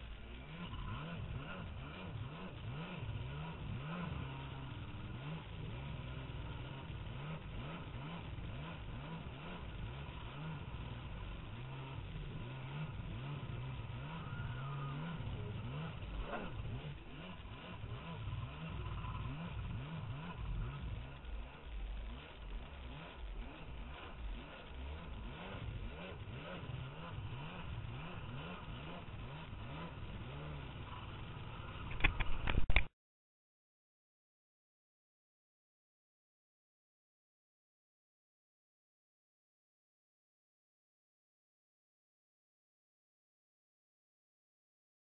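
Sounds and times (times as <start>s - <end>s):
watercraft engine revving: 0.1s - 32.6s.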